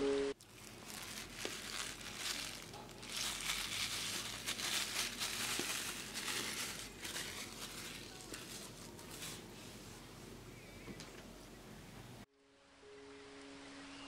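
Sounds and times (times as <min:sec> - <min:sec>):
paper sheet crumpling: 0:00.4 - 0:09.6.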